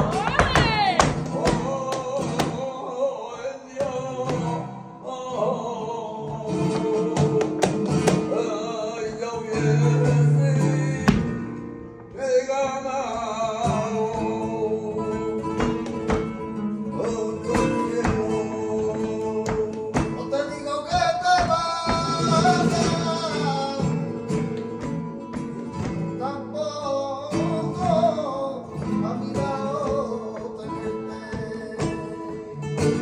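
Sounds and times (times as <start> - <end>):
person singing: 0.0 - 11.4, 16.9 - 24.2
acoustic guitar playing: 0.0 - 33.0.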